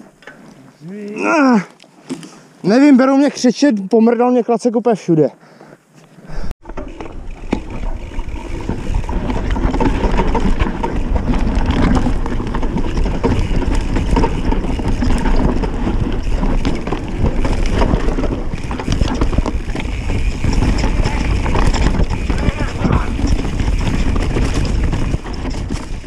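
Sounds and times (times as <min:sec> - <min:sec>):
tyres on dirt and roots: 0:00.0 - 0:26.0
bike rattling and knocking: 0:06.6 - 0:26.0
wind buffeting microphone: 0:07.2 - 0:26.0.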